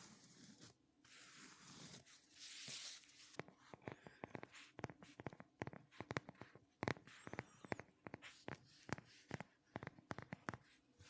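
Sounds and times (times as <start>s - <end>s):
fingers tapping on phone case: 3.7s - 10.6s.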